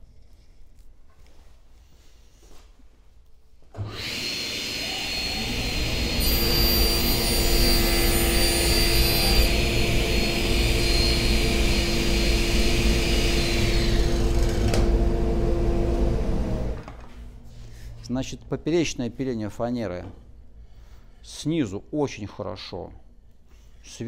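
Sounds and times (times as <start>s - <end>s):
table saw cutting plywood: 3.8s - 16.8s
table saw whining: 3.8s - 16.8s.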